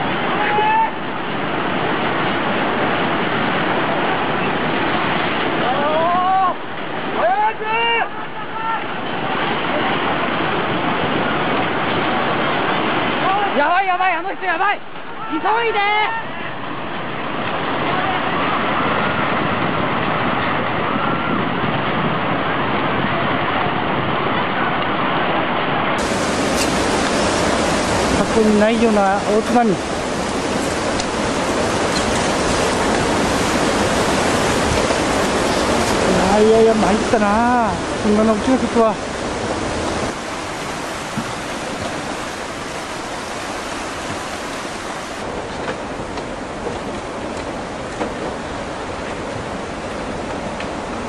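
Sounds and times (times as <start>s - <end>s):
floodwater rushing: 0.0s - 51.0s
loud rushing roar: 26.0s - 45.4s.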